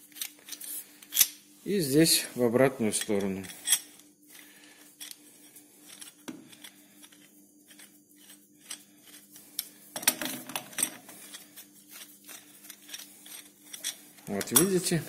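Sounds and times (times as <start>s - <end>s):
faint steady hum: 0.0s - 15.0s
metallic clicks and scrapes: 5.8s - 9.8s, 10.8s - 14.9s.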